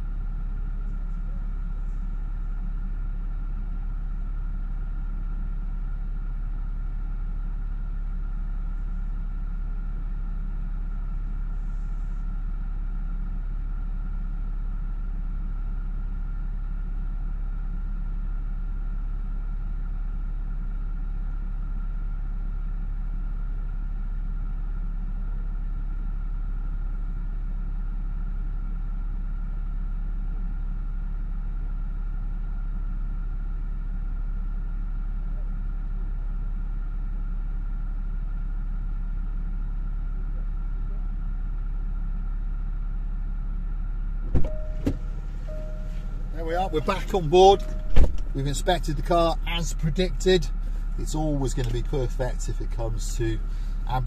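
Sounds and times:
car engine idling: 0.0 - 28.8, 29.4 - 54.0
faint high hum: 44.3 - 54.0.

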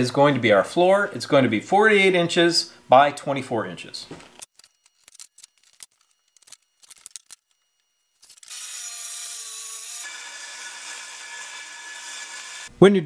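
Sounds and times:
circular saw whining: 7.5 - 12.7.

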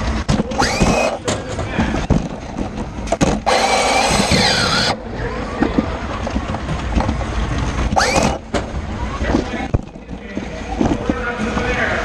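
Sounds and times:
robot motors rumbling: 0.0 - 12.0
burst of noise with squealing: 0.5 - 1.2, 3.4 - 5.0, 7.9 - 8.5.

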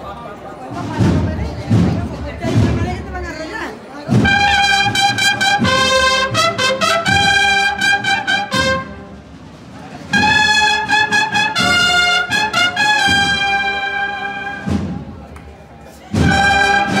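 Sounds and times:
steady drum beat: 0.6 - 15.3, 16.1 - 17.0
cornet notes: 4.1 - 15.0, 16.1 - 17.0.

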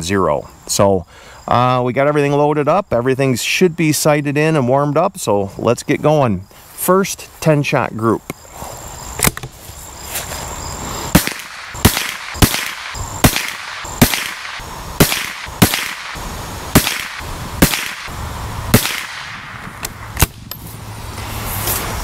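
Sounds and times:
rifle shots: 11.1 - 20.4.

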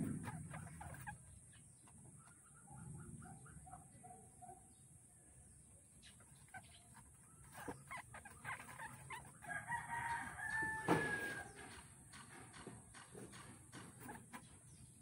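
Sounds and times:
rustling: 0.0 - 2.4, 6.2 - 11.8
chicken clucking: 0.0 - 3.8, 6.0 - 11.8
rooster crowing: 9.4 - 11.6.

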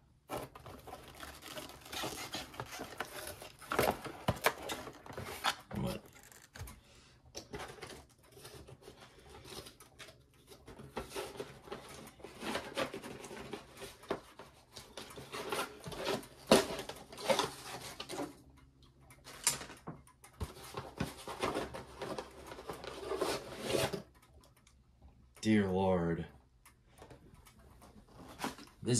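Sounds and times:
cardboard box rustling: 0.3 - 6.0.

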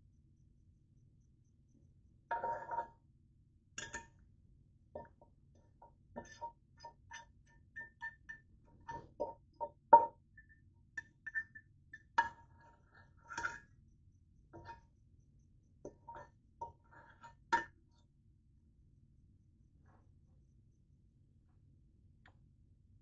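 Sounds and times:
metal fork clinking on pot: 3.8 - 4.1, 6.2 - 9.4, 10.0 - 12.4, 13.3 - 13.6.

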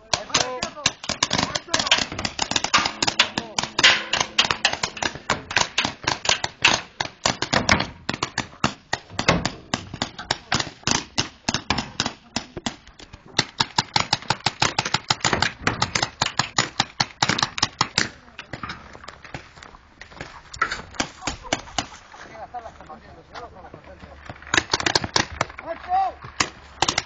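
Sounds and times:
paintball markers firing: 0.0 - 18.2, 24.3 - 25.7, 26.3 - 27.0.

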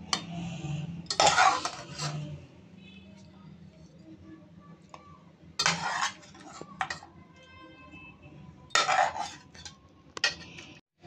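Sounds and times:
utensil scraping a ceramic plate: 1.1 - 2.3, 5.6 - 7.0, 8.7 - 10.7.

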